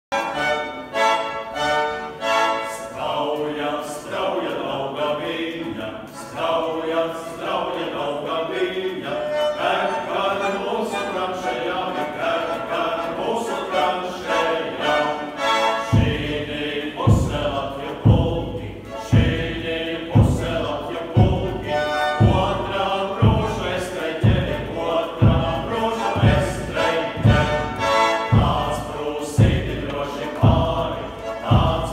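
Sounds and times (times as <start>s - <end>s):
men singing in harmony: 2.6s - 31.9s
deep thumping beat: 15.9s - 31.9s.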